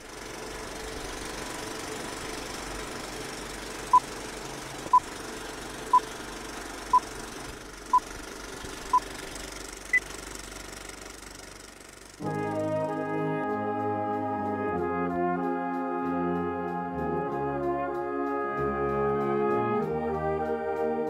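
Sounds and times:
film projector clatter: 0.0s - 12.2s.

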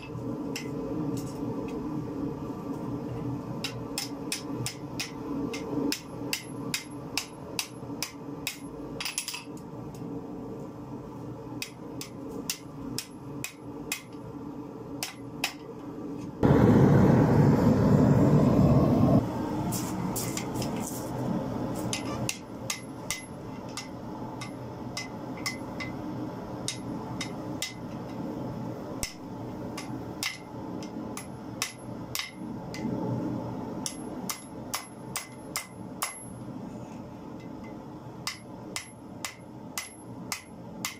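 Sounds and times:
hammer striking steel on anvil: 3.6s - 9.5s, 11.6s - 14.2s, 15.0s - 15.6s, 21.9s - 26.0s, 26.6s - 27.9s, 29.0s - 32.8s, 33.8s - 36.4s, 37.4s - 40.9s
loud rushing noise: 16.4s - 20.3s.

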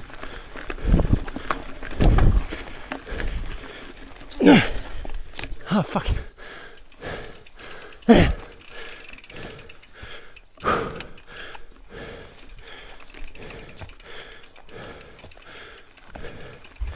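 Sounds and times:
bike rolling over dirt trail: 0.0s - 16.9s
rider breathing hard: 0.0s - 16.9s
bike bump: 0.8s - 3.4s
freehub ratcheting clicks: 6.7s - 11.8s, 12.4s - 16.9s.

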